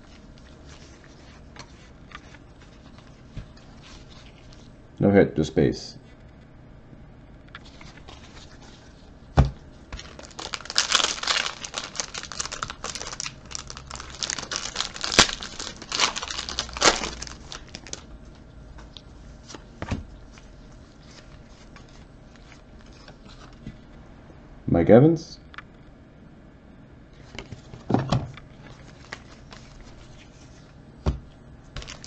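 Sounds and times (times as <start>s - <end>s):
foil wrapper tearing and crinkling: 10.0s - 18.0s, 31.8s - 32.0s.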